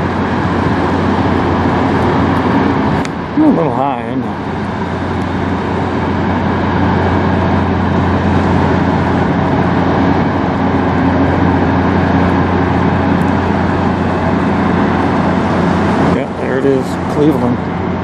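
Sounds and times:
diesel engines droning: 0.0s - 18.0s.

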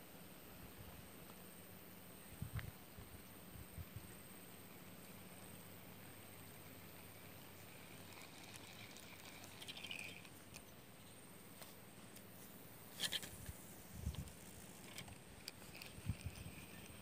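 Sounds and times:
fishing reel ticking: 7.5s - 10.7s, 14.0s - 17.0s.

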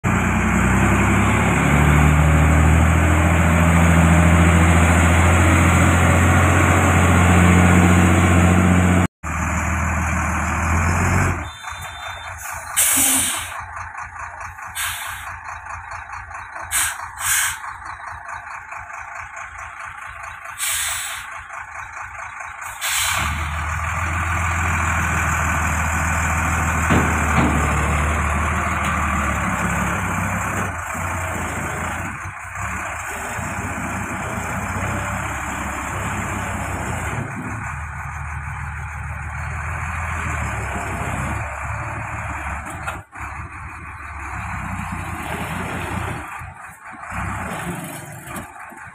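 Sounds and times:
diesel truck engine droning: 0.0s - 48.9s
air-brake hisses: 12.4s - 13.6s, 16.7s - 17.6s, 20.6s - 21.3s, 22.7s - 23.4s.

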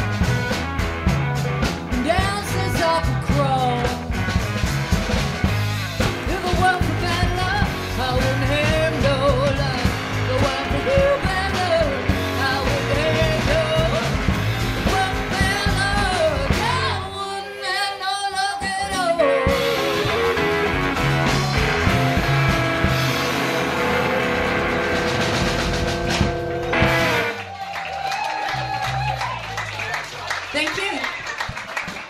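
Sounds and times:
guitars: 0.0s - 29.7s
drums: 0.0s - 32.0s
woman singing: 2.0s - 4.0s, 6.2s - 14.2s, 14.8s - 20.2s.

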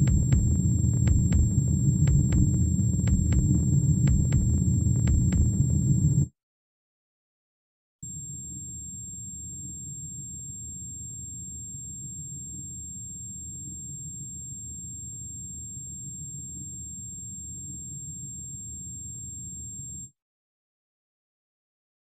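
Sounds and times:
high-pitched whine: 0.0s - 6.3s
low rumbling drone: 0.0s - 6.3s.

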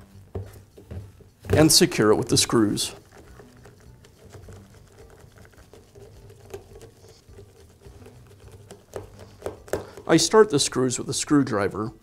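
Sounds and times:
screwdriver ticking and scraping: 3.0s - 10.2s.

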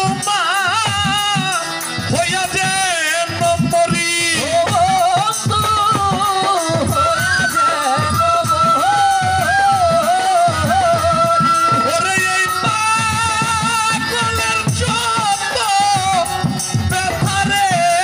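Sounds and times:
man singing folk melody: 0.0s - 18.0s.

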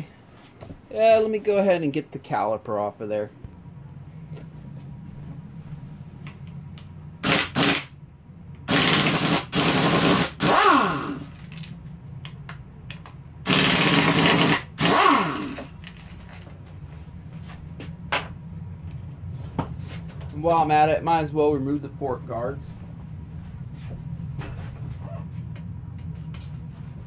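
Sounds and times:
cordless power tool whirring: 13.5s - 15.8s.

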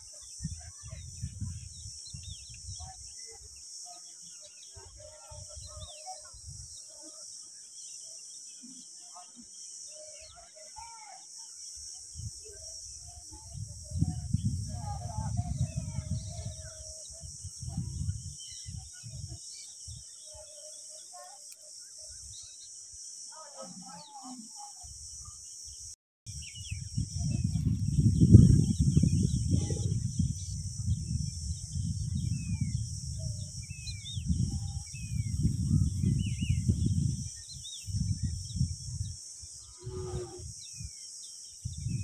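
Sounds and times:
wind buffeting microphone: 0.0s - 3.1s, 12.1s - 20.1s, 26.3s - 41.0s, 41.6s - 42.0s
high insect drone: 0.0s - 42.0s
birds chirping: 26.3s - 42.0s.

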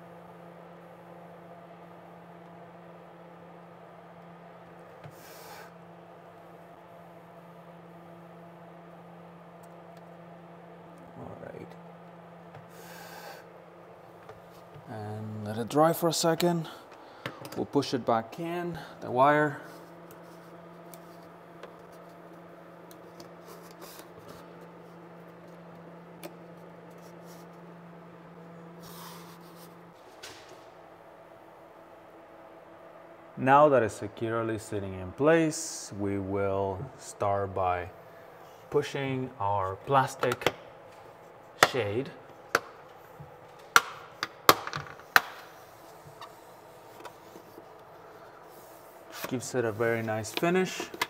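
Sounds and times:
steady low hum: 0.0s - 51.0s.

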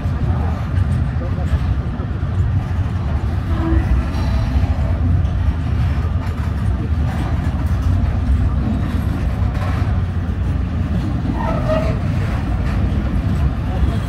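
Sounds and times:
freight train rolling past: 0.0s - 14.0s.

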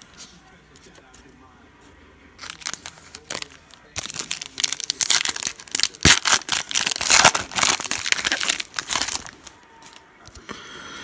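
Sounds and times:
wrapper tearing and crinkling: 2.4s - 10.0s.

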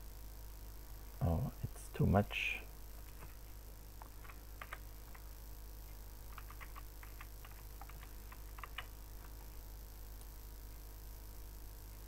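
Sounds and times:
keyboard typing: 4.0s - 5.3s, 6.3s - 9.4s.

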